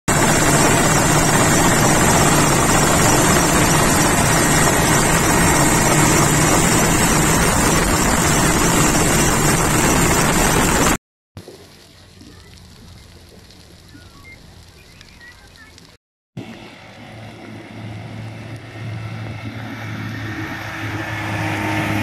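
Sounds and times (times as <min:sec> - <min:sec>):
helicopter engine and rotor: 0:00.1 - 0:11.0, 0:16.4 - 0:22.0.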